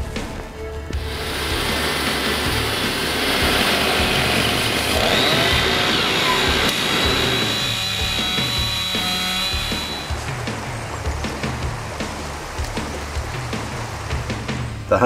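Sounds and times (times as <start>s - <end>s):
background music with steady beat: 0.0s - 15.0s
power saw whining: 1.0s - 10.5s.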